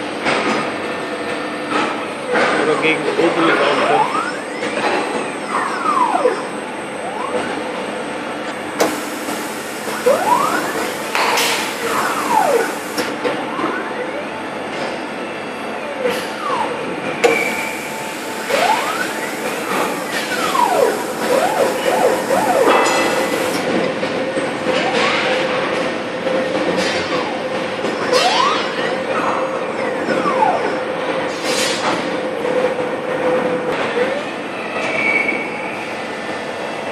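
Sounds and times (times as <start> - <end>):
milling machine drives whining: 8.5 - 23.7.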